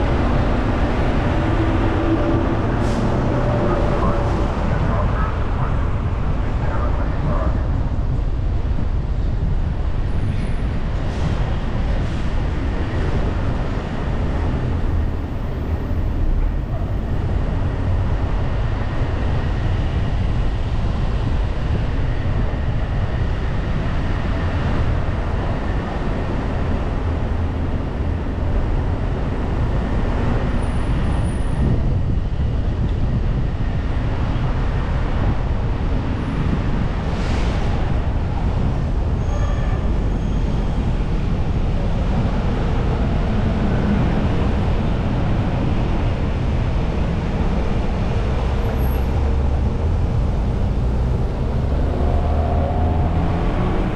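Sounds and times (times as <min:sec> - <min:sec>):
car road and wind noise: 0:00.0 - 0:53.9.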